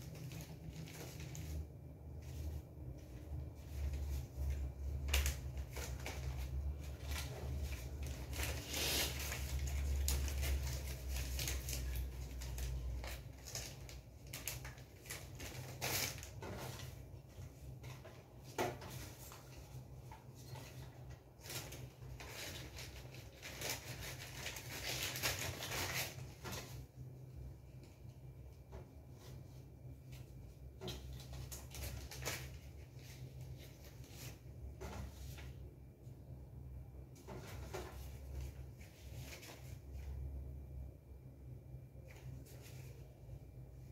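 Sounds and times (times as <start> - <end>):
plastic wrapping crinkling: 0.0 - 26.9, 30.2 - 35.6.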